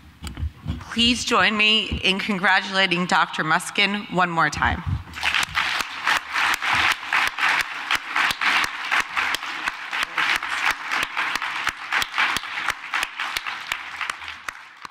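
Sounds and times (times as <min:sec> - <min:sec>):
audience applauding: 0:05.1 - 0:14.9
sharp claps: 0:05.1 - 0:14.9.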